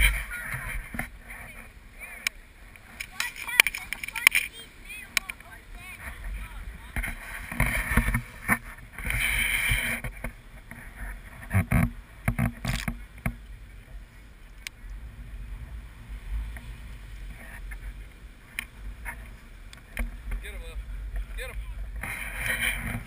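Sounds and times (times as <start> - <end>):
steady low rumble: 0.0 - 23.0
dog paws scraping sand: 2.9 - 11.5.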